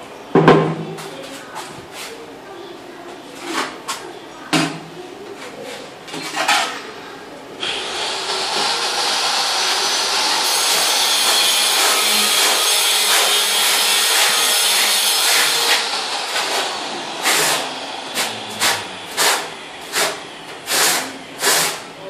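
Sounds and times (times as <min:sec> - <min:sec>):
trowel scraping tile adhesive: 0:10.4 - 0:21.9.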